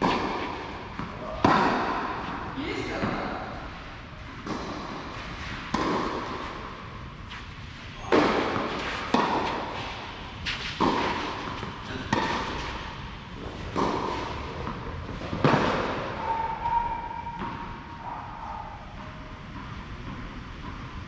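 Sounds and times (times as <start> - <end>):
tennis ball struck by racket: 0.0 - 3.2, 4.4 - 6.7, 8.1 - 16.2
tennis ball bouncing: 0.0 - 3.6, 4.3 - 6.9, 8.1 - 16.1, 19.4 - 21.0.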